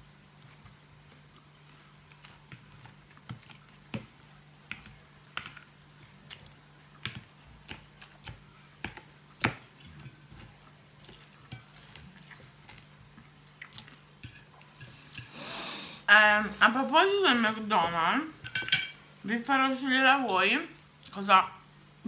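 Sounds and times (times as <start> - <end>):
faint steady hum: 0.0 - 22.0
chewing: 0.4 - 15.4.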